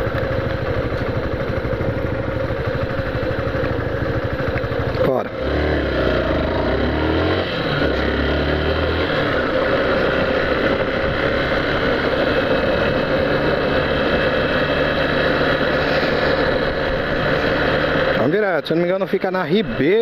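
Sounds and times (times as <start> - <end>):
motorcycle engine running: 0.0 - 20.0
wind and road noise: 0.0 - 20.0.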